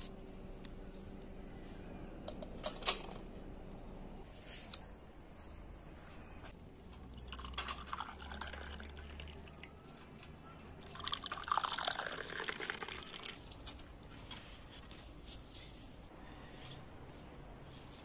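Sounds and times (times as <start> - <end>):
tea pouring into glasses: 7.0 - 13.4.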